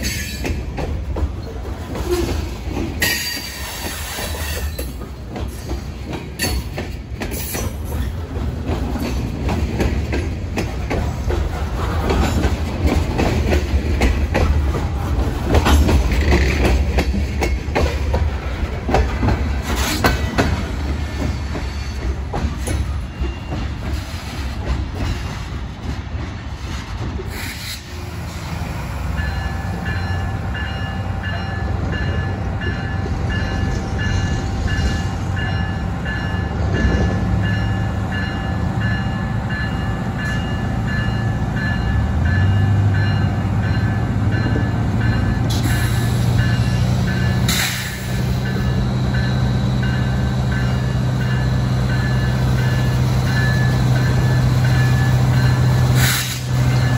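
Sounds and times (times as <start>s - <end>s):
wheels clicking over rail joints: 0.0s - 27.7s
diesel locomotive engine rumble: 0.0s - 56.9s.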